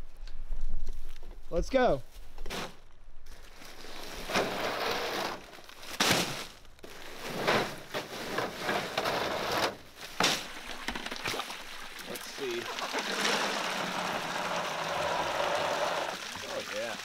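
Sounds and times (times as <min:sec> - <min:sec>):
plastic bags rustling: 0:03.3 - 0:10.9.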